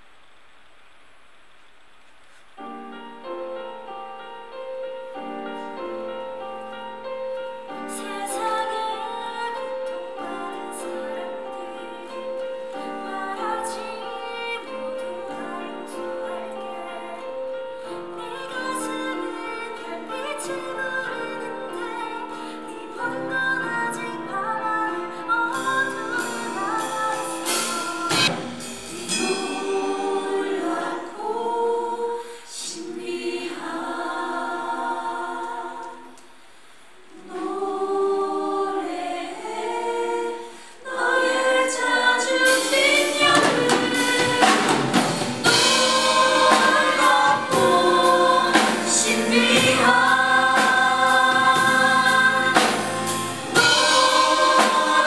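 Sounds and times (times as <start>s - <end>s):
cast singing with live band: 25.5s - 36.1s, 37.2s - 55.0s
choir with drums: 26.0s - 36.2s, 37.1s - 55.0s.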